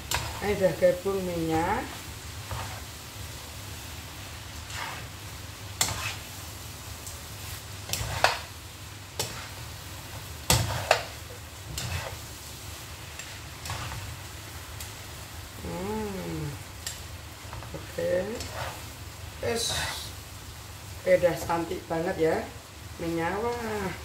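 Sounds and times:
spatulas scraping and clacking on wok: 0:00.0 - 0:02.9, 0:04.6 - 0:06.4, 0:07.4 - 0:12.3, 0:13.0 - 0:14.2, 0:16.8 - 0:20.2
low sizzle: 0:00.0 - 0:24.0.

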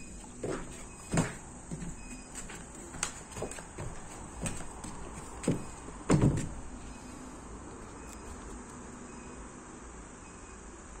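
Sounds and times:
dull knocks: 0:00.0 - 0:06.8.

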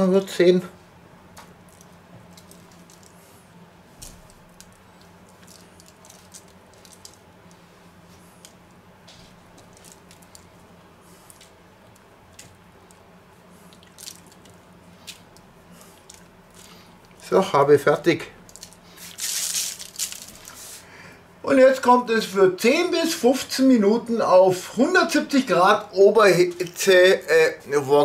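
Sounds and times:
steady low hum: 0:00.0 - 0:28.0
ground nuts sprinkled on tray: 0:18.5 - 0:20.8.

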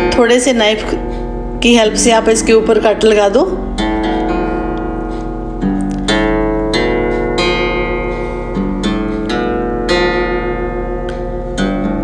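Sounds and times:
acoustic guitar melody: 0:00.0 - 0:12.0.

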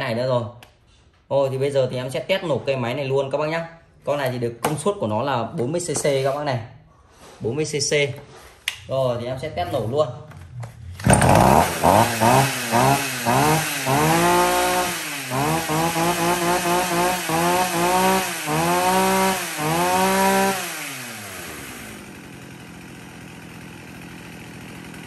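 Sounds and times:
chainsaw engine revving: 0:10.8 - 0:25.0.

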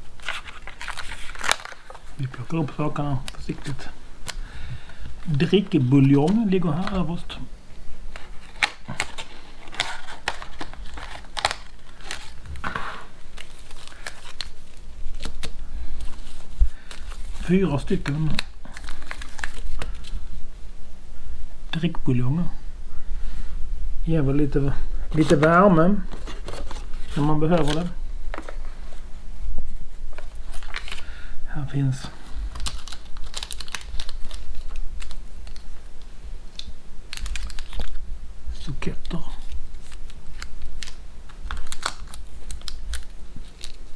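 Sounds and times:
packets crinkling and rustling: 0:00.0 - 0:07.4, 0:08.1 - 0:20.3, 0:25.1 - 0:29.0, 0:30.1 - 0:31.2, 0:31.9 - 0:35.7, 0:36.6 - 0:38.0, 0:38.7 - 0:43.9.

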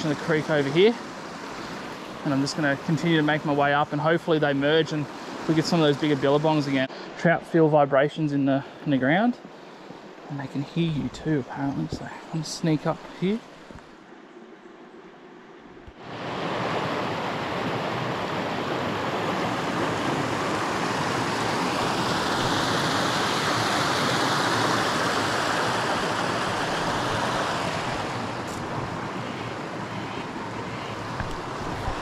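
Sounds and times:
water rushing over rocks: 0:16.0 - 0:32.0.

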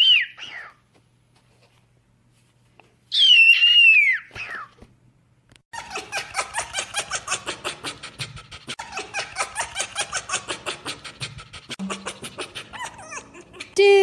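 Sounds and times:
fox yelping: 0:03.2 - 0:04.7, 0:05.8 - 0:13.8.

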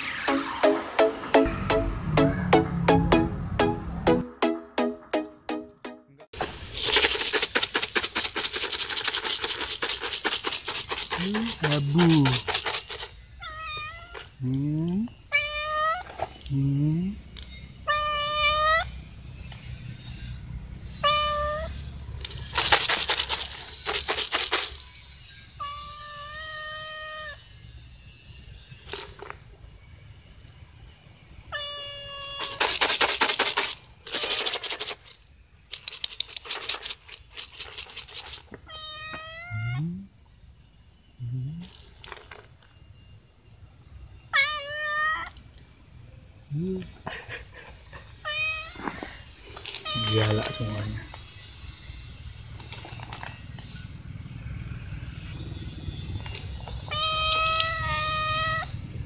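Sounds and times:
scratchy hissy noise: 0:06.4 - 0:13.1, 0:47.4 - 0:51.5
cat meowing: 0:13.4 - 0:14.2, 0:15.3 - 0:16.1, 0:17.9 - 0:18.9, 0:21.0 - 0:21.7, 0:25.6 - 0:27.4, 0:31.5 - 0:32.6, 0:38.7 - 0:40.0, 0:44.4 - 0:45.3, 0:48.2 - 0:48.8, 0:49.8 - 0:51.0, 0:56.9 - 0:58.8.

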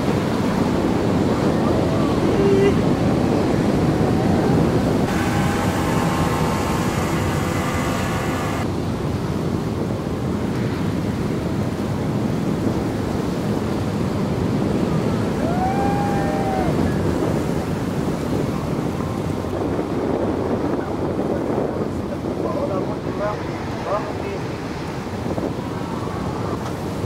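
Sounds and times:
ocean surf breaking: 0:00.0 - 0:27.0
wind buffeting microphone: 0:00.0 - 0:27.0
steady hum: 0:05.0 - 0:08.7.

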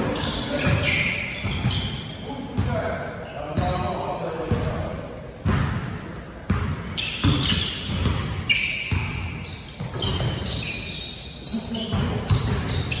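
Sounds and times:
sneakers squeaking on court: 0:00.0 - 0:04.7, 0:05.4 - 0:13.0
basketball bouncing on wooden floor: 0:06.5 - 0:10.4, 0:11.9 - 0:13.0.

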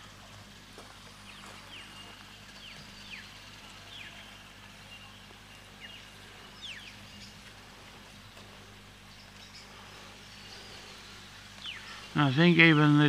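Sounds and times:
steady low hum: 0:00.0 - 0:13.0
high whistling bird calls: 0:09.1 - 0:12.9.

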